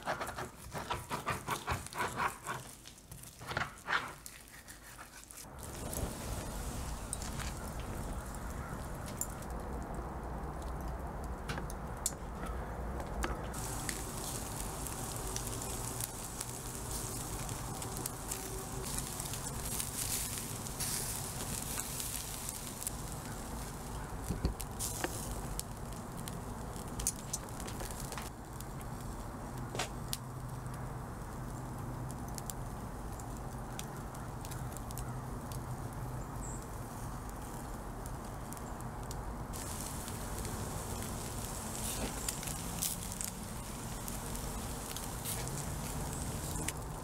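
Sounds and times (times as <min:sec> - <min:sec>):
charcoal fire crackling: 0:00.0 - 0:47.0.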